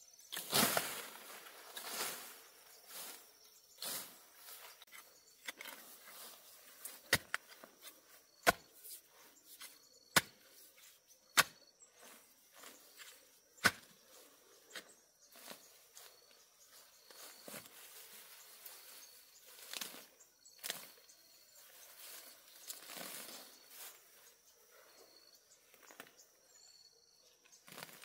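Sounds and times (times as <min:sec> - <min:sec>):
insects chirring: 0:00.0 - 0:28.0.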